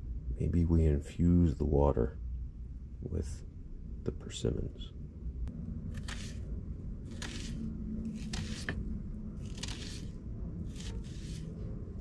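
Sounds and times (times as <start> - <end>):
knife slicing onion on wooden board: 6.0 - 6.4, 7.1 - 8.8, 10.7 - 11.5.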